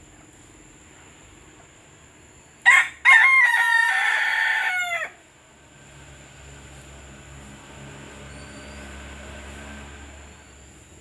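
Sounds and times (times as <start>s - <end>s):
rooster crowing: 2.6s - 5.3s.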